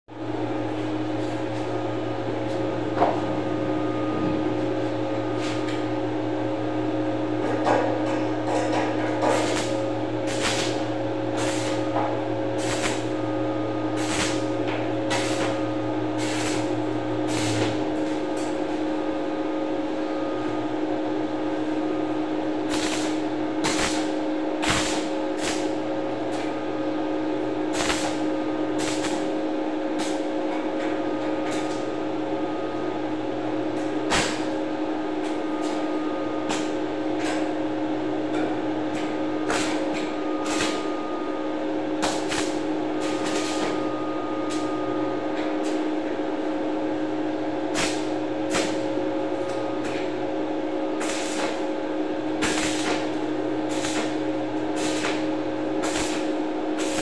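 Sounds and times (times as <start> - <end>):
arc welding hum with hiss: 0.1 - 57.0
welding pops and clicks: 7.4 - 13.1, 14.0 - 15.6, 16.2 - 16.7, 17.3 - 18.6, 22.7 - 25.7, 27.7 - 29.3, 30.0 - 30.2, 33.8 - 34.6, 38.9 - 40.9, 42.0 - 43.8, 47.7 - 50.1, 51.0 - 51.7, 52.4 - 57.0.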